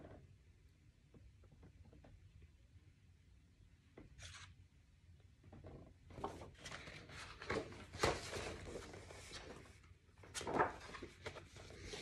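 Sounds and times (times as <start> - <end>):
paper pages rustling: 4.1 - 4.6, 6.1 - 12.0.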